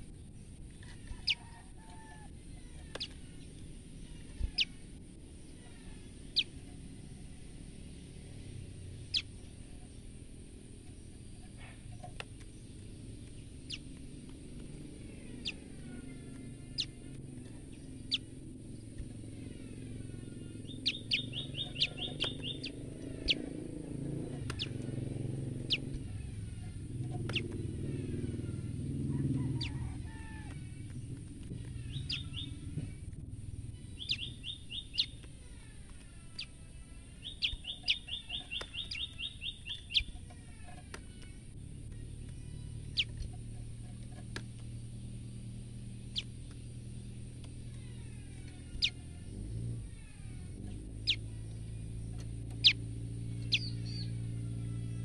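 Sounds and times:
bird rapid chip trills: 0.0 - 55.0
bird sharp chip calls: 13.3 - 14.0, 15.2 - 23.6, 24.2 - 28.7, 31.5 - 32.7, 33.7 - 44.0, 47.6 - 54.2.

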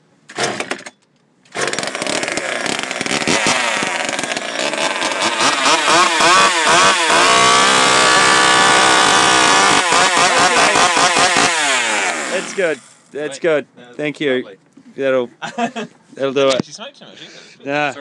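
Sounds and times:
chainsaw engine revving: 1.5 - 13.0.

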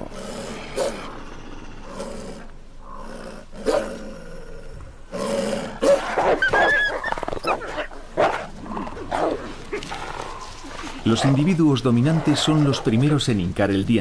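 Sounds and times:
wolves snarling and growling: 0.0 - 13.2
high whines or yelps: 6.3 - 7.7.

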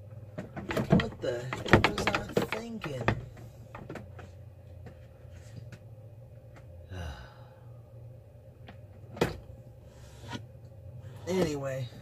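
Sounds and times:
steady low hum: 0.0 - 12.0
person sighing: 6.9 - 7.8.

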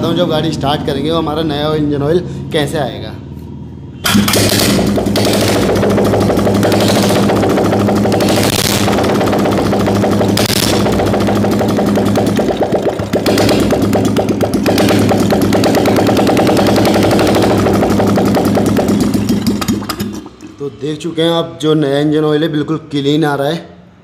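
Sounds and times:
valve gear clattering: 4.0 - 20.5
motorcycle engine idling: 4.7 - 20.0.

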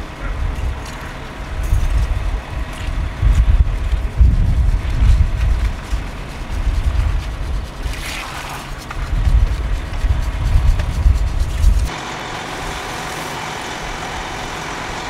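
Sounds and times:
fire engine running: 0.0 - 7.9, 8.7 - 15.0
wind buffeting microphone: 0.0 - 12.0.

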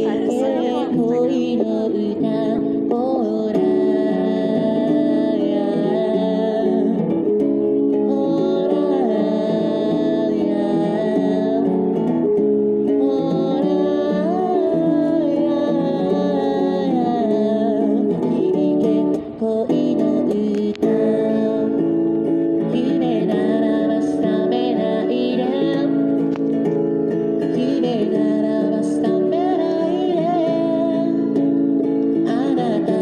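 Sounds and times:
man singing: 0.0 - 7.0, 32.2 - 33.0
acoustic guitar: 0.0 - 33.0.

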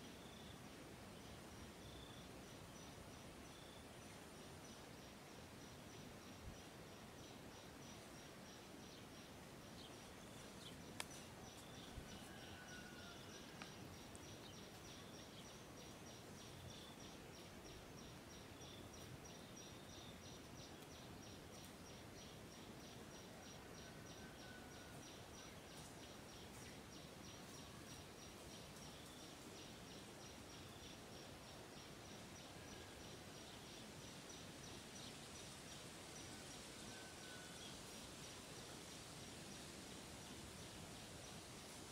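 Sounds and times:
faint clicks: 10.9 - 11.3, 13.6 - 14.8.

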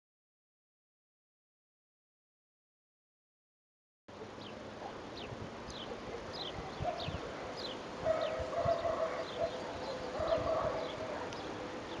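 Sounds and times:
longer lower bird call: 4.2 - 12.0.

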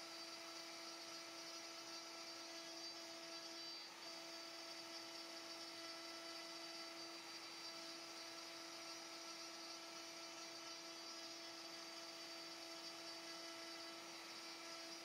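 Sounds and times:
end mill cutting wood: 0.0 - 15.0
router spindle whining: 0.0 - 15.0.

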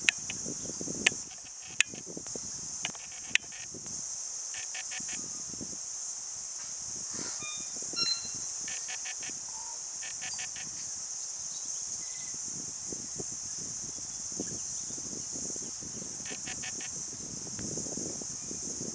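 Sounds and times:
high-pitched insect drone: 0.0 - 18.9
quick chirps: 4.6 - 5.2, 7.5 - 9.4, 10.0 - 10.7, 16.3 - 16.9.

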